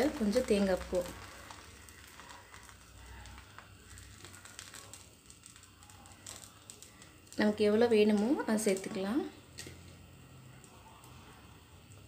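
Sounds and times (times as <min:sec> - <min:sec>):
batter crackling on hot griddle: 0:00.0 - 0:12.0
coconut sprinkling ticks: 0:00.0 - 0:12.0.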